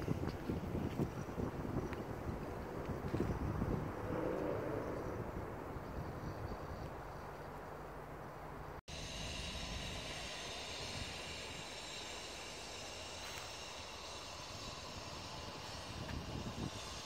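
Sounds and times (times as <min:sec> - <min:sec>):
low rumble: 0:01.5 - 0:07.2
outdoor hiss: 0:08.6 - 0:17.0.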